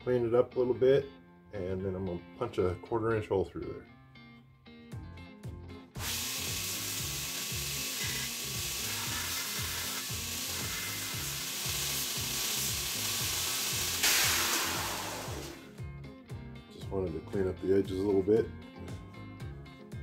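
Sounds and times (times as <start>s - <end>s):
background music with bass line: 0.0s - 20.0s
belt grinder grinding steel: 6.0s - 15.6s.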